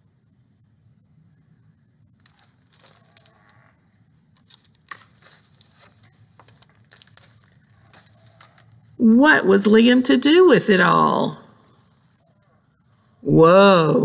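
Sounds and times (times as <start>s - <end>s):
book pages rustling: 2.1s - 9.0s.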